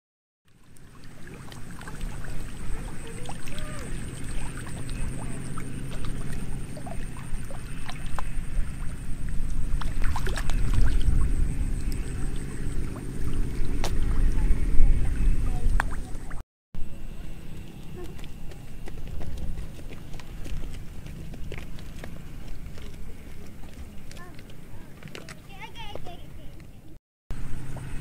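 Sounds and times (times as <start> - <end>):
dense low rumble: 1.2 - 24.9.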